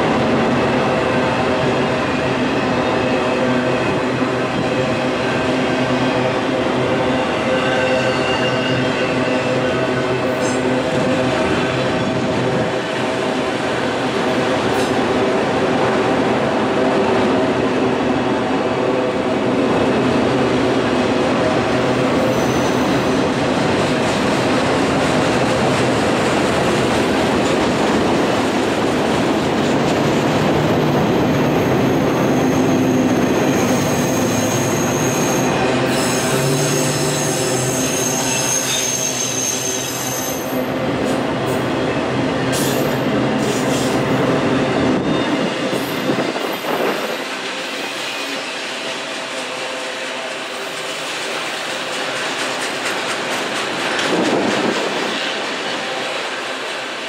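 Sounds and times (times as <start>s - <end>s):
freight train wheels rumbling on rail: 0.0s - 57.0s
high-pitched wheel squeal: 7.4s - 9.7s, 31.4s - 40.7s.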